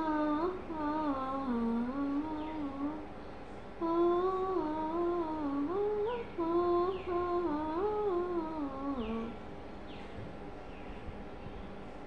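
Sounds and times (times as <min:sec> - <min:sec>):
person humming: 0:00.0 - 0:03.1, 0:03.8 - 0:09.4.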